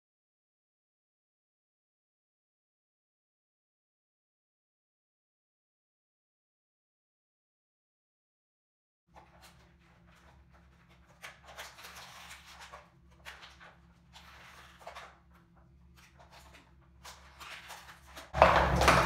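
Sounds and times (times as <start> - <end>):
plastic packaging crinkling: 9.2 - 19.0.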